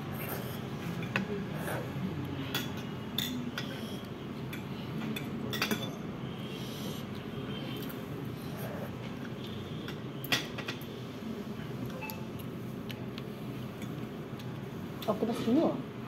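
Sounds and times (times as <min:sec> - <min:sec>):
cutlery clinking on plates: 0:02.4 - 0:06.0.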